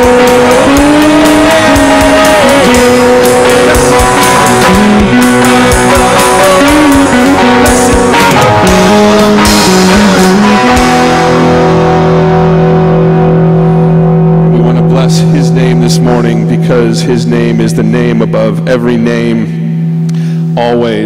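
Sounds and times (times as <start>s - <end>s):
drum hits: 0.0s - 12.0s
church band playing: 0.0s - 20.8s
electric guitars: 0.0s - 21.0s.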